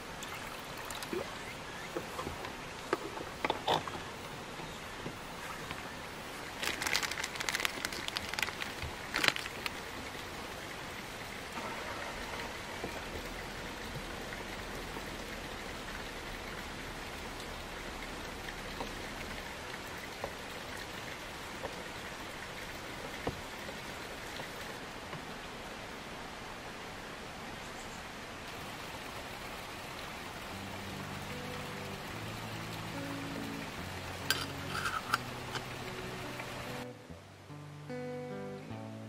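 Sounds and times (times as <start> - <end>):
running water rushing: 0.0 - 37.5
sharp clicks and rustles: 6.6 - 9.8.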